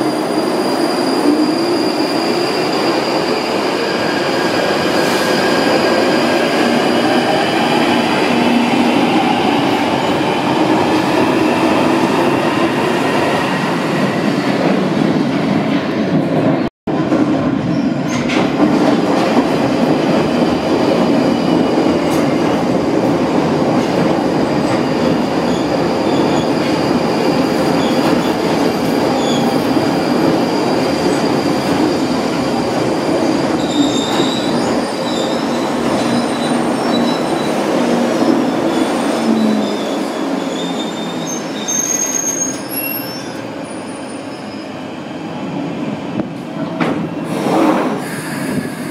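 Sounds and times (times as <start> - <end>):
train wheels rumbling on rail: 0.0 - 48.9
steel wheel squeal: 38.7 - 44.8.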